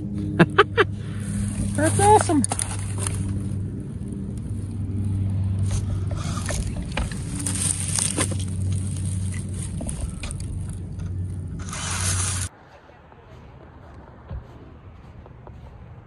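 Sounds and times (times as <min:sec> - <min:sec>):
steady low hum: 0:00.0 - 0:12.6
reeds scraping against toy car: 0:05.6 - 0:12.5.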